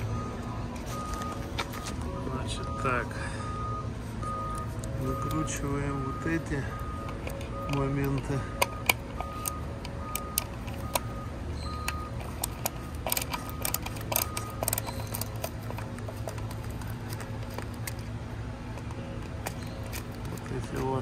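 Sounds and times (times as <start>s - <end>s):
screwdriver clicks and taps: 12.2s - 18.0s.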